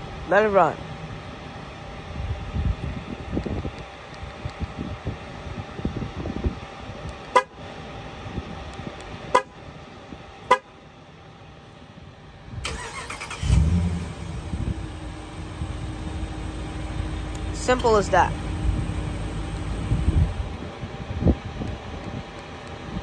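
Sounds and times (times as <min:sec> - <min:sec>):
car horn chirps: 0:10.5 - 0:10.7
car engine cranking and idling: 0:12.6 - 0:22.9.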